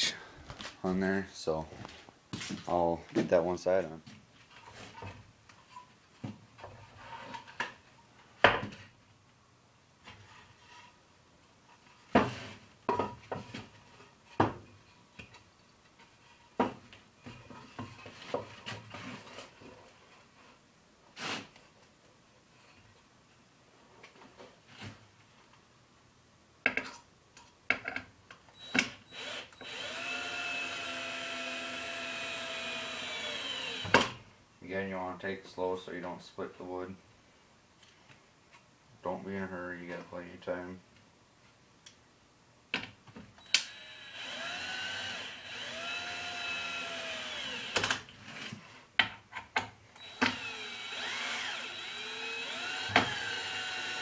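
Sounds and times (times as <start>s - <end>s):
cordless drill motor whine: 28.6s - 34.0s, 43.4s - 47.9s, 50.0s - 54.0s.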